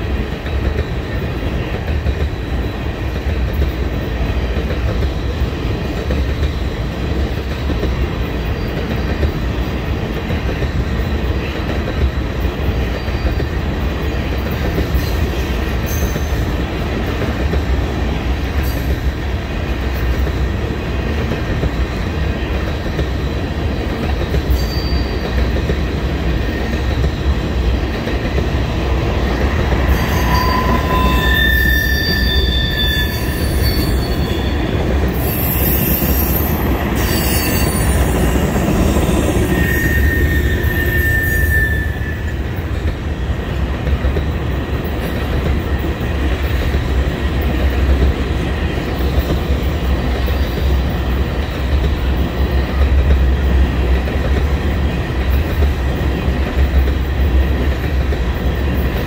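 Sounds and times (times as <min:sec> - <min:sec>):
train wheels rumbling on rail: 0:00.0 - 0:59.0
high wheel squeal: 0:24.5 - 0:25.3, 0:29.9 - 0:42.5.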